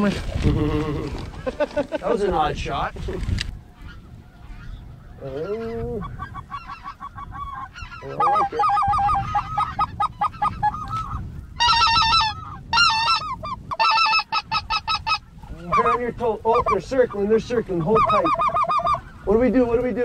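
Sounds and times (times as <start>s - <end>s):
geese calling: 3.5s - 20.0s.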